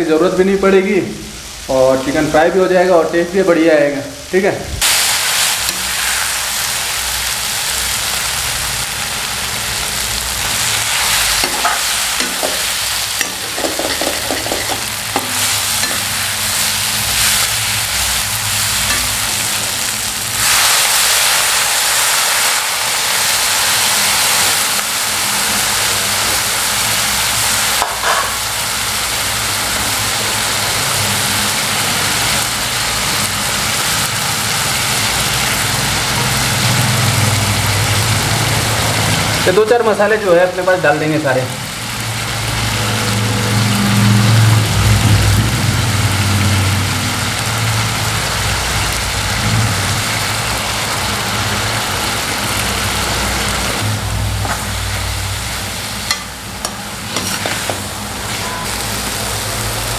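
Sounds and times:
chicken and onions sizzling: 0.1 - 59.9
metal spoon scraping pan: 11.0 - 16.3, 56.0 - 58.7.

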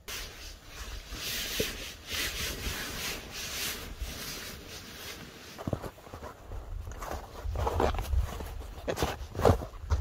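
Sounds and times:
nylon fabric rustling: 0.1 - 9.7.

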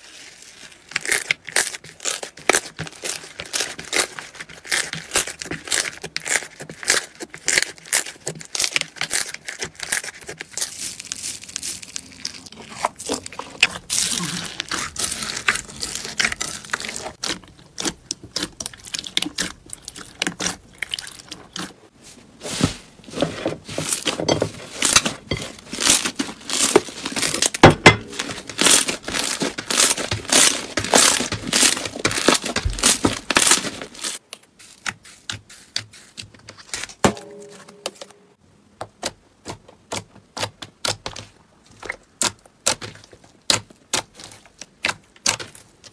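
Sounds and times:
slime crackling and popping: 0.6 - 21.6, 25.7 - 34.2.

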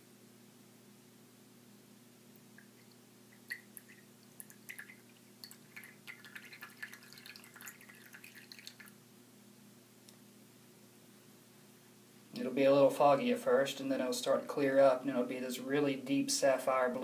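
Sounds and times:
liquid dripping into a glass: 2.4 - 9.0.

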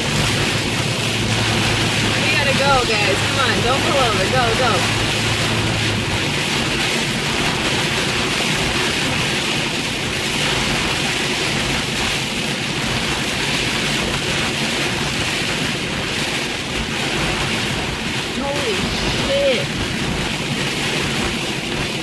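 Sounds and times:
heavy rain on a car: 0.0 - 22.0.

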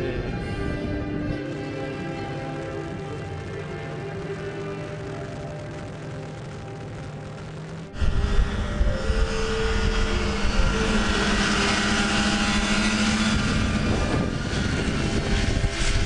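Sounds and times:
snowmobile engine droning: 0.0 - 16.0.

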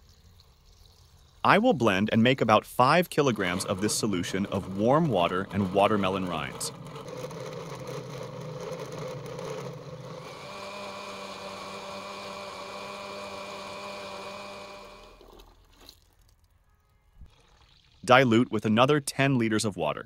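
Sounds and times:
blender motor running: 3.4 - 15.5.

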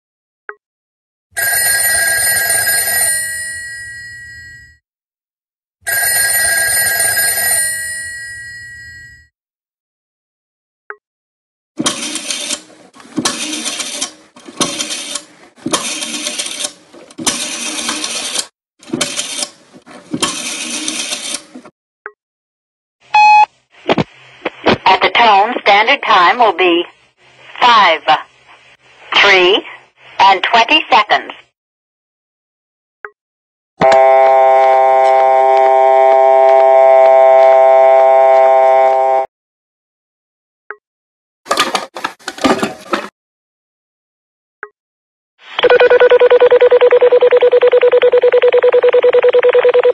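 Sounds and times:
rotary phone dial whirring: 11.8 - 21.6
phone beep: 23.1 - 23.5, 45.6 - 49.9.

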